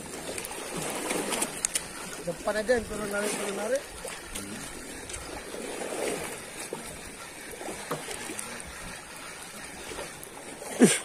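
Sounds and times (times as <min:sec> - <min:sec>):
sea water lapping against boat hull: 0:00.0 - 0:11.0.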